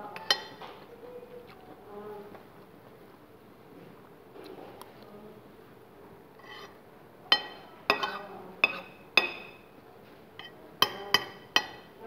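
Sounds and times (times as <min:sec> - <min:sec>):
cutlery clinking on a dish: 0:00.1 - 0:00.8, 0:07.3 - 0:09.7, 0:10.4 - 0:11.9.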